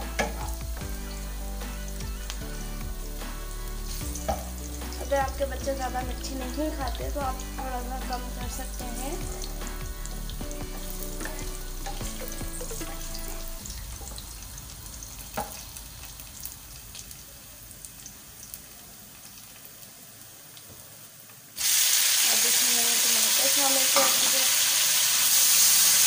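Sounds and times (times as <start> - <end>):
background music with held notes: 0.0 - 14.0
onions sizzling in oil: 0.0 - 26.0.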